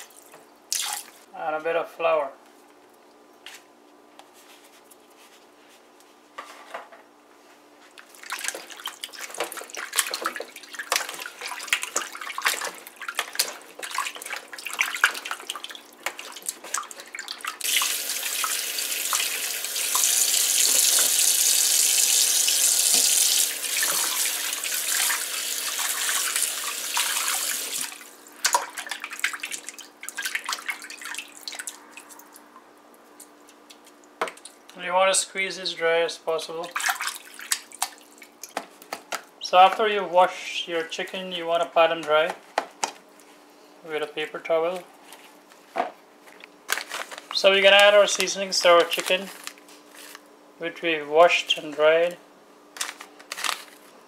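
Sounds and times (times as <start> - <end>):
water splashing in a bowl: 0.0 - 1.2, 8.0 - 32.5, 36.7 - 38.6
kitchen tap running: 8.4 - 28.2.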